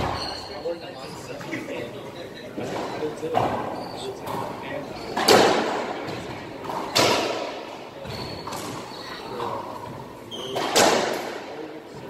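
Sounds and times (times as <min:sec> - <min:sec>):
racquetball smacks echoing: 0:05.2 - 0:08.8, 0:10.4 - 0:11.6.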